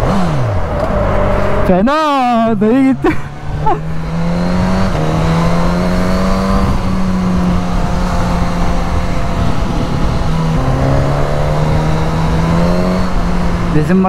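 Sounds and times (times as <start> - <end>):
motorcycle engine accelerating: 0.0 - 14.0
wind rush: 0.0 - 14.0.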